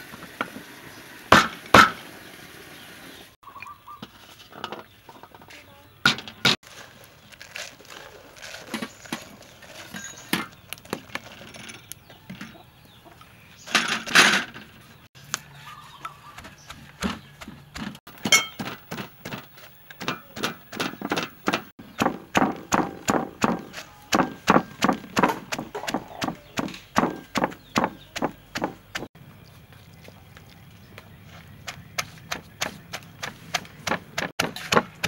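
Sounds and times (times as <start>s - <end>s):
wooden pestle pounding: 16.4s - 29.1s, 31.6s - 35.0s.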